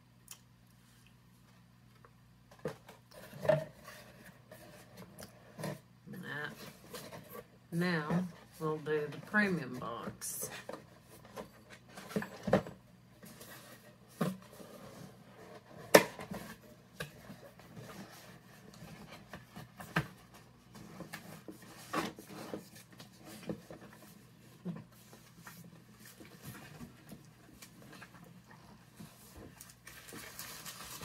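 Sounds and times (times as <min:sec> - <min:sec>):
packaging rustling: 0:29.2 - 0:31.0.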